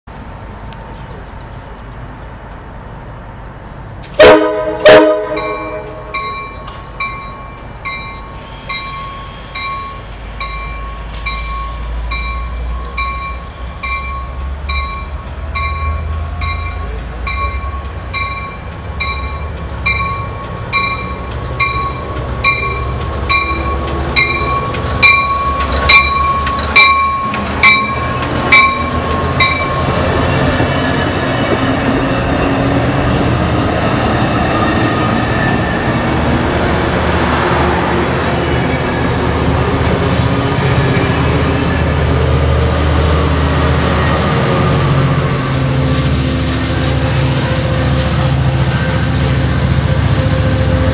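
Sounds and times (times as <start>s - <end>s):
diesel locomotive rumble: 0.1s - 50.9s
train horn blasts: 4.2s - 6.4s, 8.4s - 9.8s
bell dinging: 5.4s - 29.9s
train wheels clacking over rail joints: 9.6s - 32.2s.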